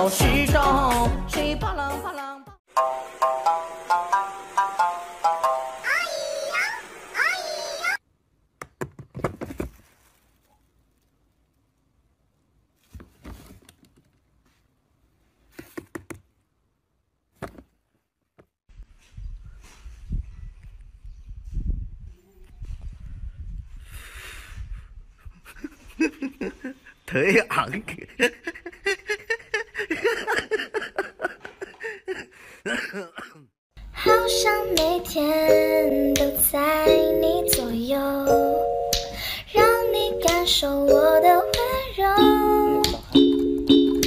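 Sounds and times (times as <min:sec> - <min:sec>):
person laughing: 0:25.2 - 0:27.0, 0:27.8 - 0:33.5.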